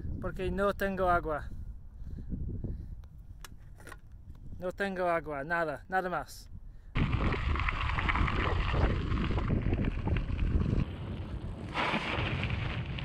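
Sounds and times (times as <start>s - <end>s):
wind buffeting microphone: 0.0s - 4.7s, 6.5s - 13.0s
bicycle tyres on gravel: 7.0s - 13.0s.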